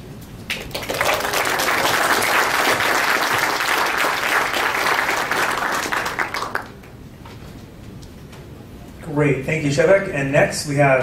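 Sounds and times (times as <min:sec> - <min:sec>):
audience clapping: 0:00.5 - 0:07.0.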